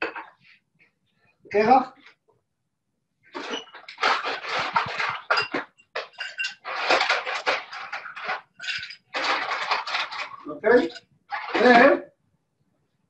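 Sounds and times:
ice cubes clinking into a glass: 3.4 - 11.8.

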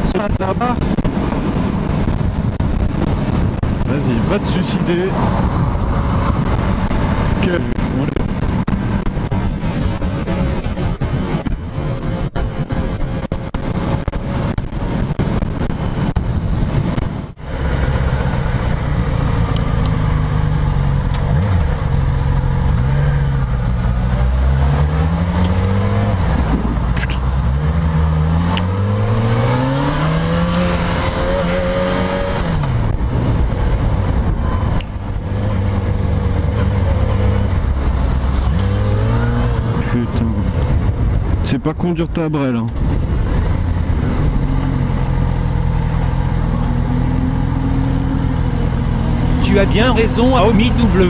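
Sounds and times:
wind rush: 0.0 - 19.6, 23.4 - 41.5, 42.7 - 44.8
motorcycle engine accelerating: 5.2 - 41.4.

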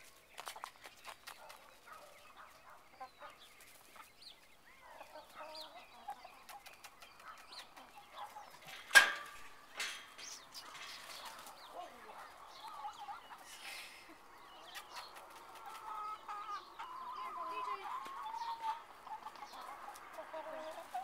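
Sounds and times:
chicks clucking and chirping: 0.0 - 21.0.

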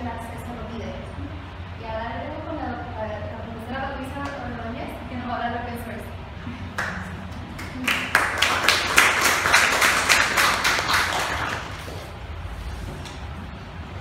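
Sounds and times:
audience applauding: 6.8 - 11.9.

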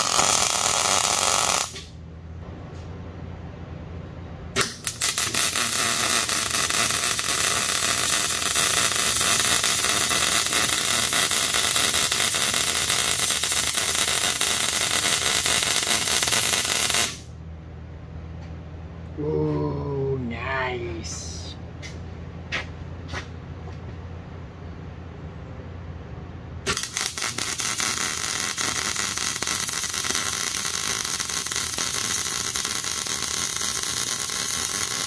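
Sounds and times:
welder arc crackling: 0.0 - 1.9, 4.6 - 17.3, 26.7 - 35.0.

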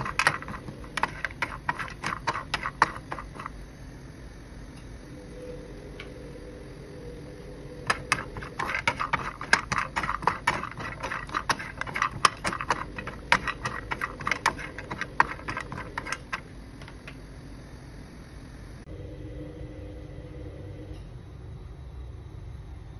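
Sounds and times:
nuts clattering in a frying pan: 0.0 - 3.6, 7.9 - 16.4
low hum: 0.0 - 22.9.

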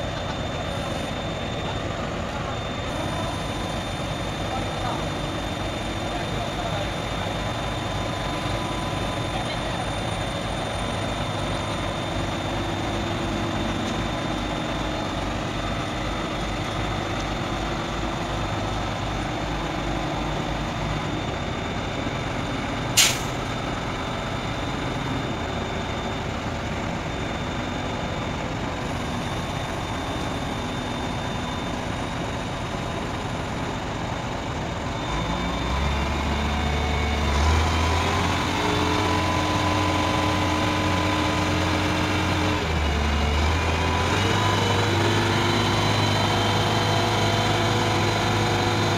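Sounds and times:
diesel engine running: 0.0 - 48.9
short sharp hiss: 23.0 - 23.4.

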